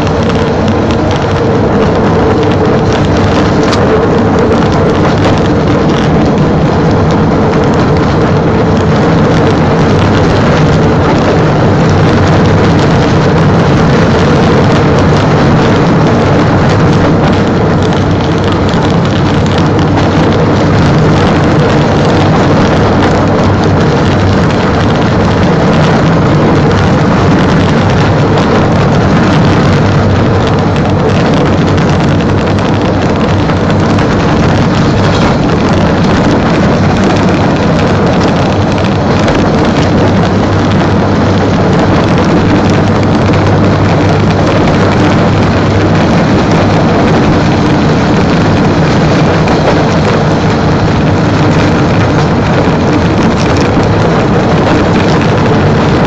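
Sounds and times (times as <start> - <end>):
rail vehicle engine droning: 0.0 - 56.0
rush of movement over rails: 0.0 - 56.0.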